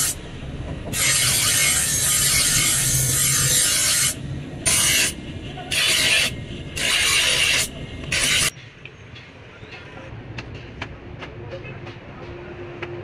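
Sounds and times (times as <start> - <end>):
knife on grinding wheel: 0.9 - 8.5.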